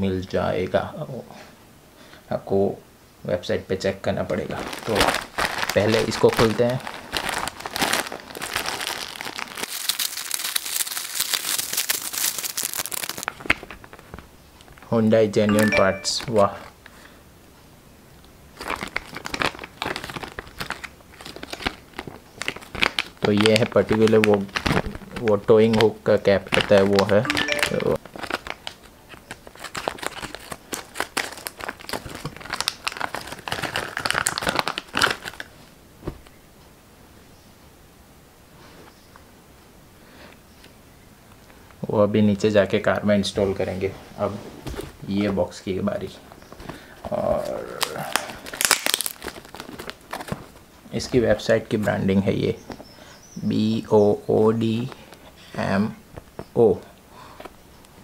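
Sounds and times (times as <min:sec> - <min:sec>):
bubble wrap crinkling: 0:04.2 - 0:14.9, 0:18.5 - 0:36.3, 0:46.3 - 0:51.4.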